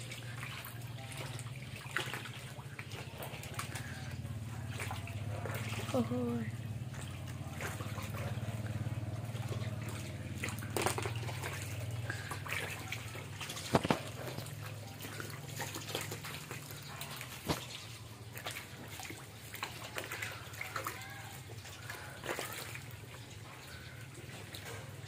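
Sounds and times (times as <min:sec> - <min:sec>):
low steady hum: 0:00.0 - 0:25.0
short sharp splashes: 0:00.0 - 0:25.0
water trickling and splashing: 0:00.0 - 0:25.0.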